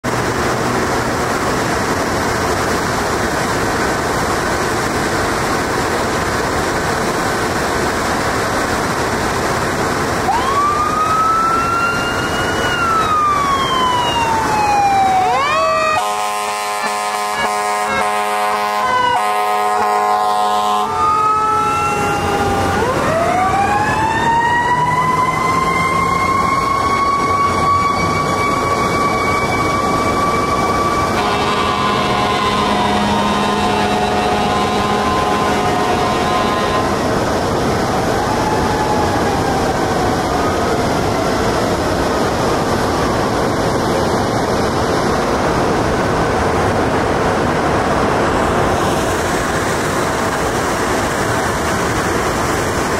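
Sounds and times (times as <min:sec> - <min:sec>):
fire engine running: 0:00.0 - 0:52.9
siren wailing: 0:10.3 - 0:37.0, 0:37.9 - 0:41.4
air horn blasts: 0:15.9 - 0:21.0, 0:31.2 - 0:37.0.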